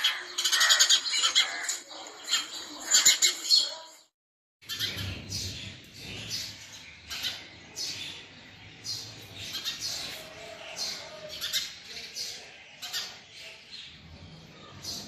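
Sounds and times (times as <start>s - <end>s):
sparrow chirping: 4.6s - 15.0s.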